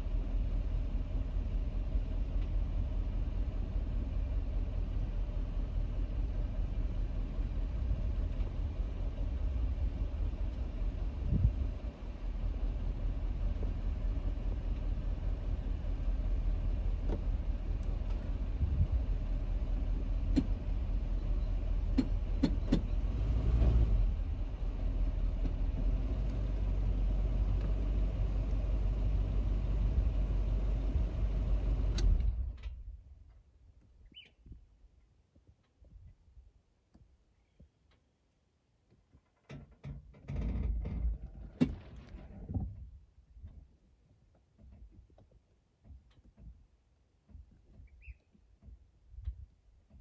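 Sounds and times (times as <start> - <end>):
steady low rumble: 0.0 - 33.8.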